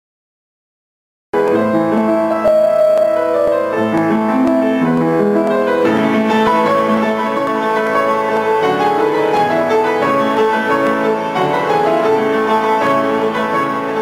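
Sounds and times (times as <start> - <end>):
upright piano playing: 1.4 - 14.0.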